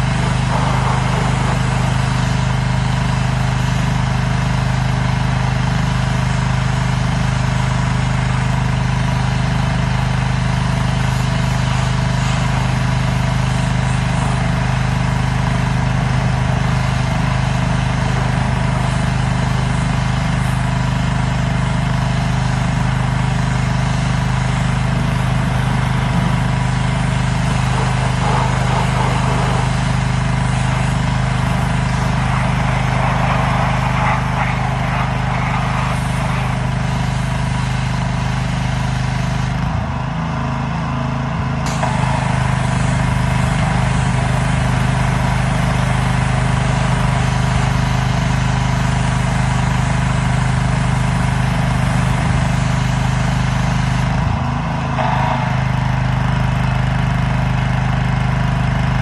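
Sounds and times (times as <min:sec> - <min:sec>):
spray hissing: 0:00.0 - 0:02.9, 0:23.6 - 0:37.6, 0:41.7 - 0:46.2, 0:55.0 - 0:56.8
pressure washer motor running: 0:00.0 - 0:59.0.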